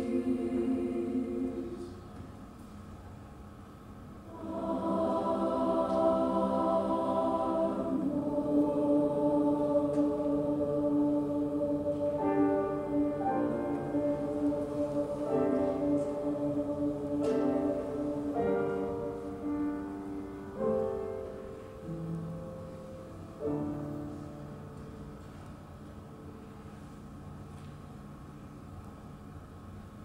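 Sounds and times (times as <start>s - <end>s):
piano chords: 0.0s - 1.9s, 4.3s - 26.6s
chorus singing held notes: 0.0s - 2.1s, 4.2s - 24.2s.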